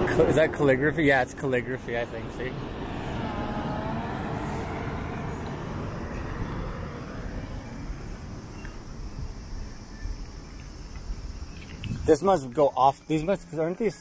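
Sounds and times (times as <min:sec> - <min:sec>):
vehicle passing by: 0:00.0 - 0:10.5
background rumble: 0:00.0 - 0:12.2.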